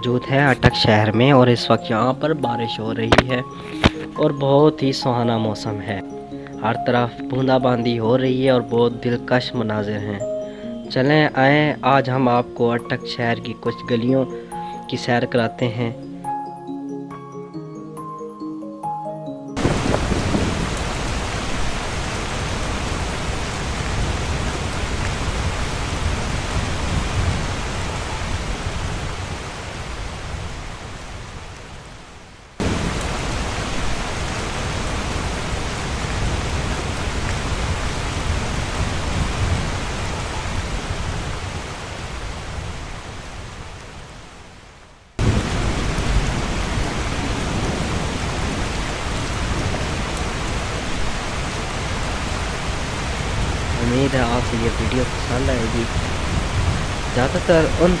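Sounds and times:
heavy rain: 0.0 - 6.8, 13.0 - 15.1, 19.6 - 58.0.

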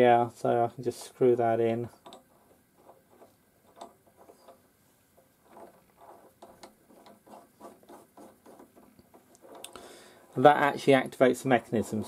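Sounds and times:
light rubbing of metal handle: 0.8 - 12.0.

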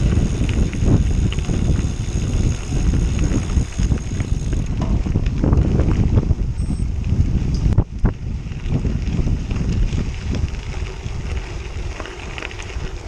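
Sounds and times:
tyres crunching on gravel: 0.0 - 6.2
bike rattling: 0.0 - 13.0
wind rumbling on microphone: 0.0 - 13.0.

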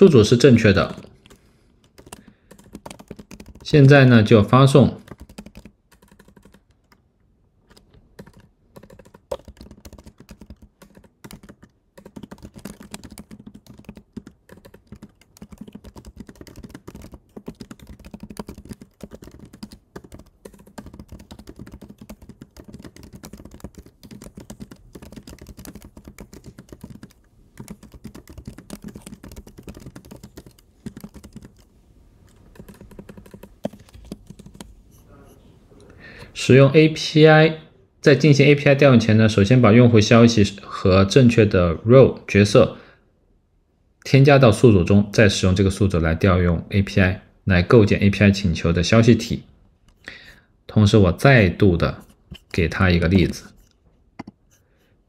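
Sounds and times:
keyboard typing: 0.8 - 4.0, 5.0 - 7.0, 7.6 - 35.4, 52.0 - 54.6.

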